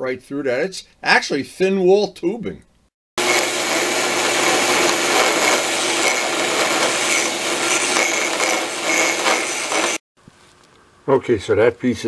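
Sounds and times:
sander grinding metal tubing: 3.2s - 10.0s.

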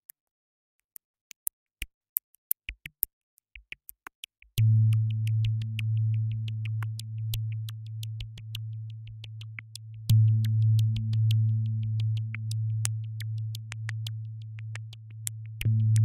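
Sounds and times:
sustained low synth tone: 4.6s - 16.0s
synth blips and clicks: 5.0s - 16.0s.

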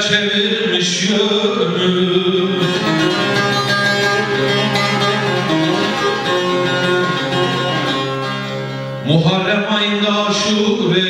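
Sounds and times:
plucked lute notes over drone: 2.0s - 9.1s.

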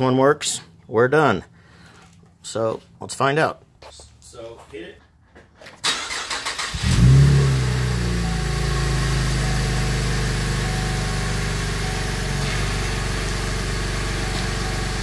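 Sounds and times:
car engine starting and idling: 5.8s - 15.0s.

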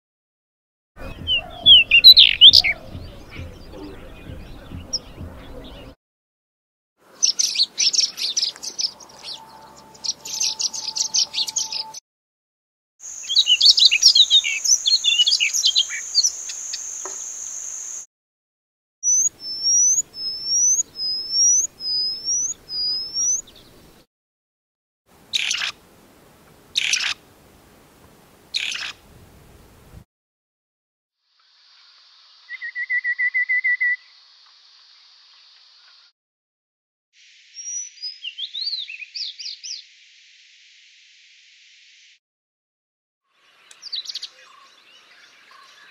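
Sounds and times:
bird twittering song: 1.0s - 6.0s, 7.2s - 12.0s, 13.1s - 18.0s, 19.0s - 23.9s, 37.6s - 39.9s, 43.4s - 45.9s
whistled bird notes: 1.0s - 6.0s, 13.1s - 18.1s, 19.0s - 23.6s, 32.4s - 34.3s, 37.5s - 39.8s.

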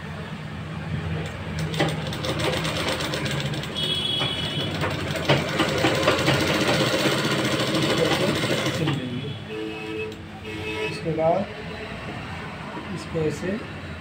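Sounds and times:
sewing machine needle clatter: 1.6s - 3.8s, 4.6s - 9.0s.

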